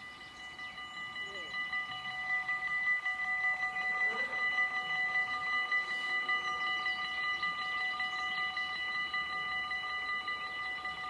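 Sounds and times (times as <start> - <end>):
level crossing warning bells: 0.0 - 11.0.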